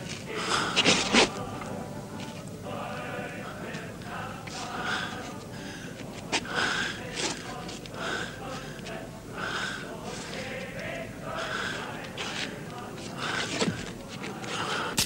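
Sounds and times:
man breathing hard: 4.7 - 7.0, 8.0 - 8.8, 9.4 - 10.0, 11.3 - 12.0, 13.2 - 15.0.

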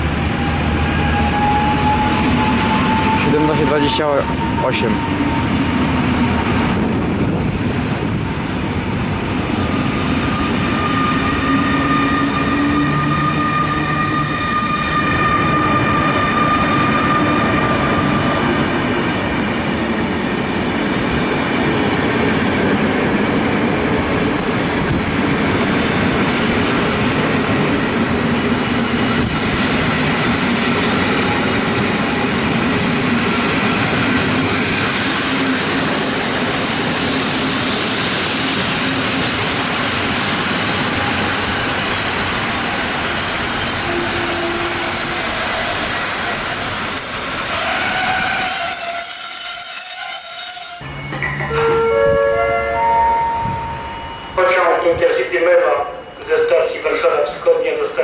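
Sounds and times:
train wheels rumbling on rails: 0.0 - 58.0
wheels and brakes squealing: 9.8 - 18.1, 43.3 - 56.7.

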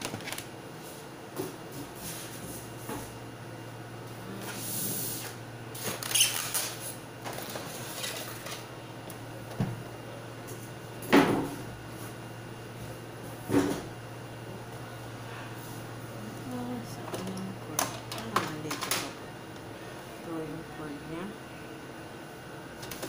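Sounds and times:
packaging rustling and crinkling: 0.0 - 0.5, 5.8 - 8.6.

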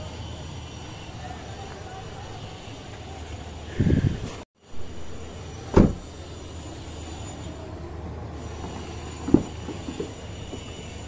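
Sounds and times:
loud short thud: 5.7 - 6.0.

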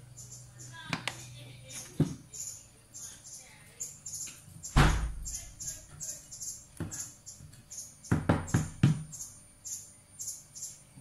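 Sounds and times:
high chirping: 0.0 - 11.0
sharp knocks: 8.1 - 9.1.

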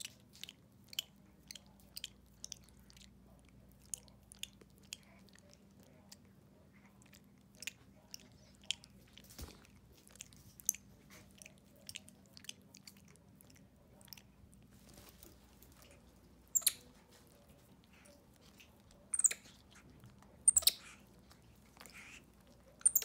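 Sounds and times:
wet mouth clicks and smacks: 0.0 - 2.8
monkey licking and chewing candy: 0.0 - 23.0.

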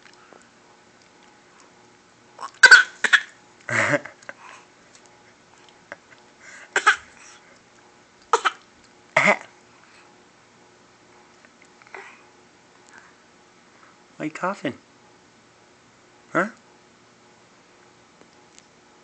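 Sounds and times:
baby coughing: 2.4 - 4.0, 6.7 - 7.1, 8.3 - 8.6, 9.2 - 9.5.

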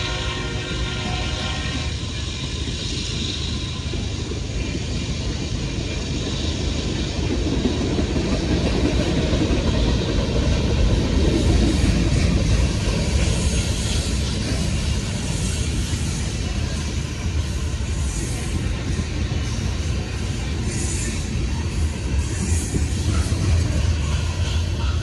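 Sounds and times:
train wheels rumbling on rails: 0.0 - 25.0.

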